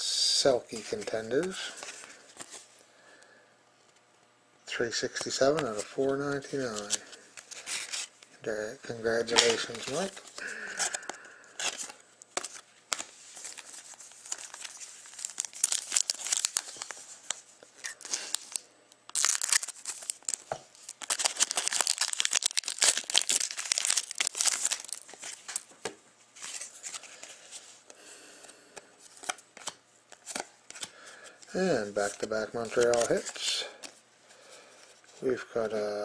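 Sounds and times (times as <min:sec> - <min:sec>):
foil wrapper tearing and crinkling: 0:09.3 - 0:25.7.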